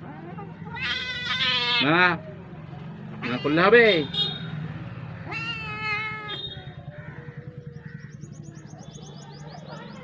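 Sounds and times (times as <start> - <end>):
kitten meowing: 0.7 - 1.8, 5.2 - 6.3.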